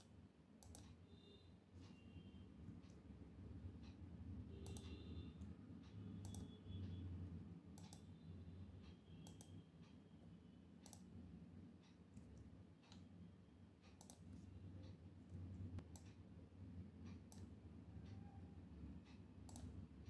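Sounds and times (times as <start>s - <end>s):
faint mouse clicks: 0.0s - 1.0s, 4.6s - 7.0s, 7.8s - 8.1s, 8.8s - 10.0s, 10.8s - 11.2s, 11.8s - 13.1s, 13.8s - 16.2s, 17.0s - 18.4s, 19.0s - 19.8s
low electrical hum: 0.0s - 20.0s.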